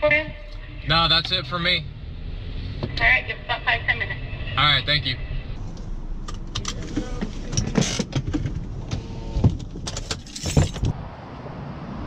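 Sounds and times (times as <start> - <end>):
engine and road rumble: 0.0 - 12.0
keys jangling: 9.9 - 10.9.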